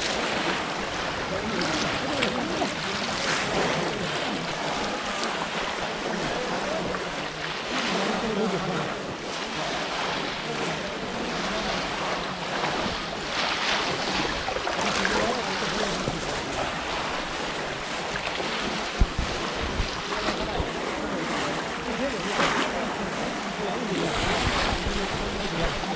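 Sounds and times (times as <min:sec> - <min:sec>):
water splashing and sloshing: 0:00.0 - 0:25.9.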